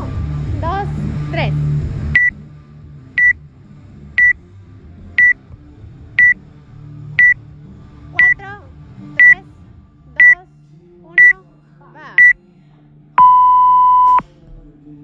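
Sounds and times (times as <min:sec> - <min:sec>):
short high timer beeps: 0:13.2 - 0:14.2.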